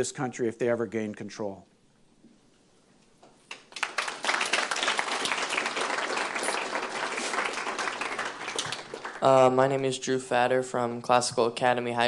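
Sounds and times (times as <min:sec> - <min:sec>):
audience applauding: 0:03.5 - 0:09.6.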